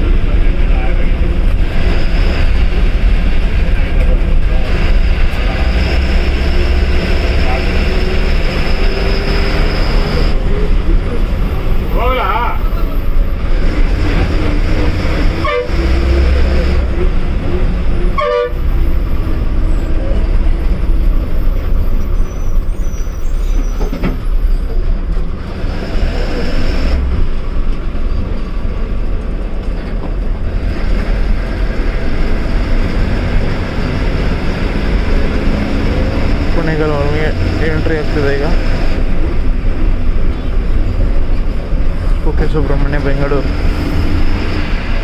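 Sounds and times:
bus engine running: 0.0s - 45.0s
bus horn toots: 15.3s - 16.4s, 18.1s - 18.9s.

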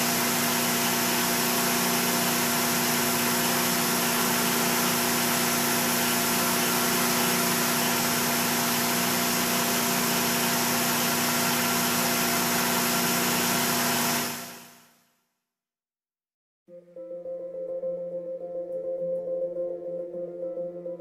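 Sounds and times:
metal lathe humming: 0.0s - 14.5s.

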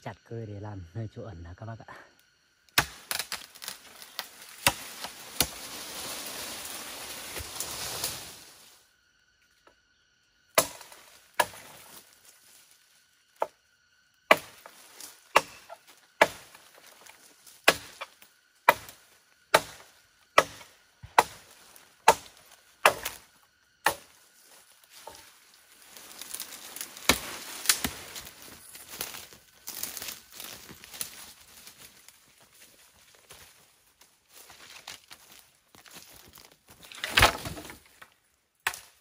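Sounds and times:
branches and leaves rustling: 2.2s - 39.0s
blade chopping green wood: 15.3s - 16.6s, 17.6s - 18.1s, 18.7s - 23.2s.

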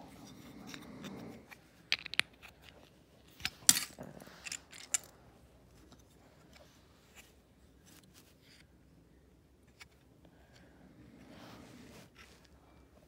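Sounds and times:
plastic bricks clicking and clattering: 1.9s - 2.7s, 3.4s - 5.1s.

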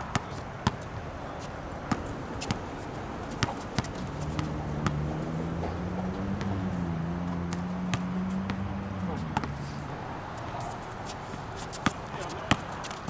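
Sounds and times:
basketball bouncing on hard court: 0.1s - 0.8s, 3.3s - 5.0s, 9.3s - 9.5s, 11.8s - 13.0s.

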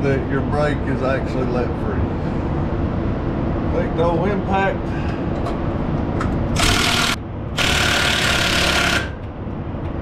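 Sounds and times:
cordless impact wrench bursts: 6.6s - 9.2s.

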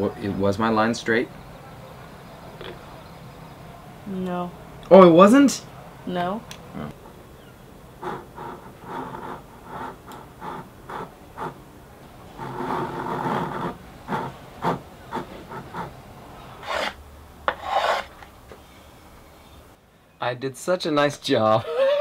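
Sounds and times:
hand saw cutting wood: 16.6s - 18.2s.

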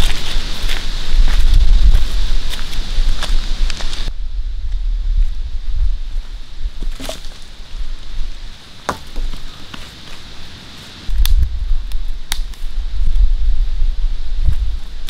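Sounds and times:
wind rumble on microphone: 0.0s - 8.5s, 11.1s - 15.0s
dry branches snapping: 11.1s - 12.7s.

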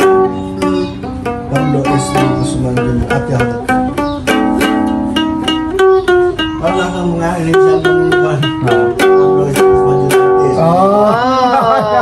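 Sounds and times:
ukulele strumming chords: 0.0s - 12.0s.

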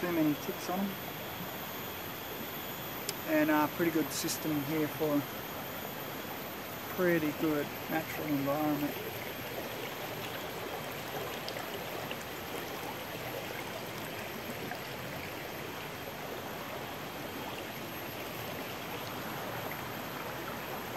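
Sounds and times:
river flowing over stones: 6.0s - 20.9s.

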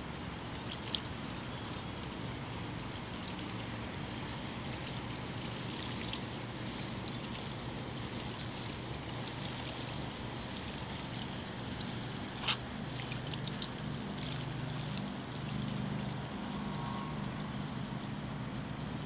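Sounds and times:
distant motorboat engine drone: 0.0s - 19.0s
water lapping and splashing: 0.0s - 19.0s.

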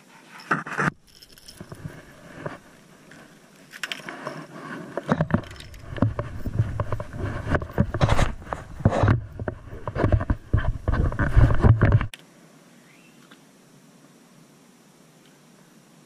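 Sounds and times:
clothing rubbing on camera: 0.0s - 12.1s.

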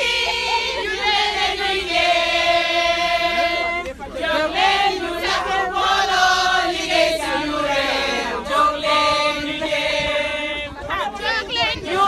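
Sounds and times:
crowd singing a chant-like song: 0.0s - 12.0s.

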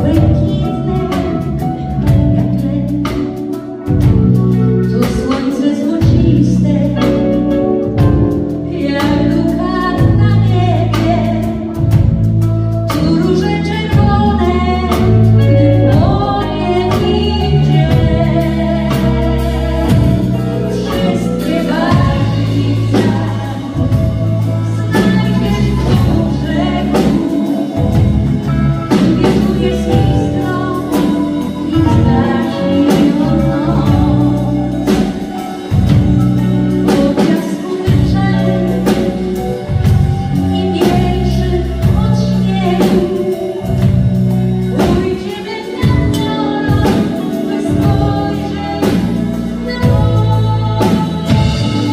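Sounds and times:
live pop band playing: 0.0s - 51.9s
person singing: 12.9s - 51.9s.

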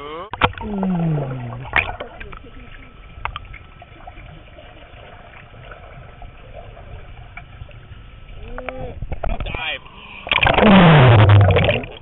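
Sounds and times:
faint water movement: 0.0s - 12.0s
muffled underwater rumble: 0.4s - 12.0s
small underwater ticks: 3.2s - 3.5s.

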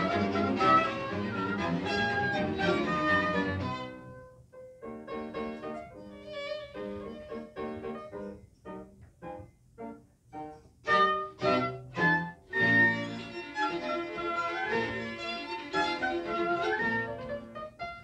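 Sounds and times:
cello: 0.0s - 4.3s, 5.3s - 8.3s, 10.9s - 18.0s
violins: 0.0s - 4.3s, 5.3s - 8.1s, 10.9s - 18.0s.

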